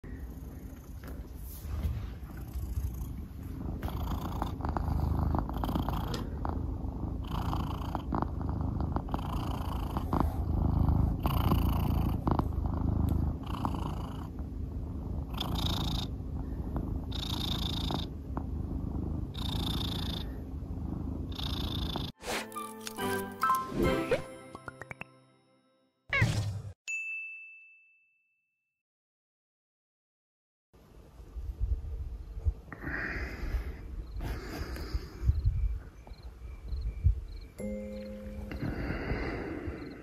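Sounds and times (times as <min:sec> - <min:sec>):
cat purring: 0:00.0 - 0:22.2, 0:37.9 - 0:40.0.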